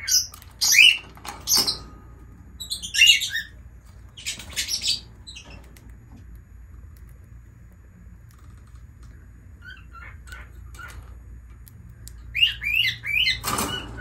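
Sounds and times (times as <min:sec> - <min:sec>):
lovebird chirping: 0:02.6 - 0:03.6, 0:04.2 - 0:05.6, 0:12.3 - 0:13.4.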